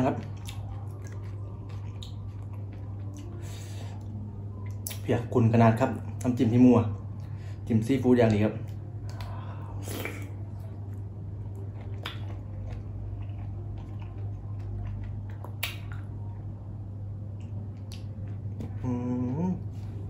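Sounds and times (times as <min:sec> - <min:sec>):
person chewing: 0:00.0 - 0:05.0, 0:08.7 - 0:16.4, 0:17.4 - 0:20.0
steady low hum: 0:00.0 - 0:20.0
wet mouth clicks and smacks: 0:15.3 - 0:16.1
person humming: 0:18.6 - 0:20.0.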